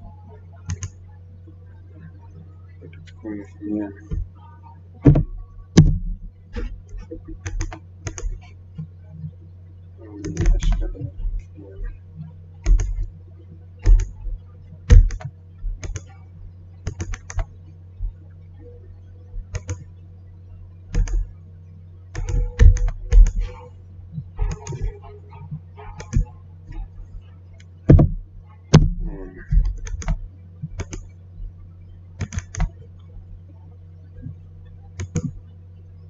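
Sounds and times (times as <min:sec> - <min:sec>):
steady low hum: 0:00.0 - 0:36.0
computer keyboard typing: 0:00.7 - 0:01.0, 0:06.6 - 0:08.5, 0:10.2 - 0:12.0, 0:12.6 - 0:13.1, 0:13.8 - 0:14.3, 0:14.9 - 0:16.2, 0:16.8 - 0:17.5, 0:19.4 - 0:19.8, 0:20.9 - 0:21.3, 0:22.1 - 0:23.6, 0:24.4 - 0:25.1, 0:25.8 - 0:26.9, 0:28.8 - 0:31.1, 0:32.2 - 0:32.8, 0:35.0 - 0:35.3
mouse clicks: 0:00.7 - 0:01.0, 0:06.6 - 0:08.4, 0:12.6 - 0:13.1, 0:14.9 - 0:16.1, 0:16.8 - 0:17.5, 0:19.5 - 0:19.9, 0:20.9 - 0:21.3, 0:22.1 - 0:23.6, 0:25.9 - 0:26.8, 0:28.8 - 0:31.1, 0:32.2 - 0:32.8, 0:35.0 - 0:35.4.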